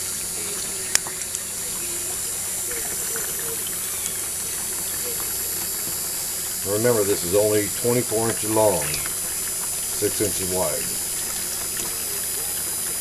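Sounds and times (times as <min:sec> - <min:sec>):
water running over matting: 0:00.0 - 0:13.0.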